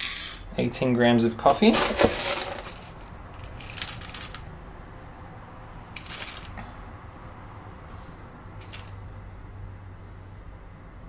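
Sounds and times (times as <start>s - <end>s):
coffee beans rattling into metal cup: 1.7s - 4.4s, 6.0s - 6.6s, 8.6s - 9.0s.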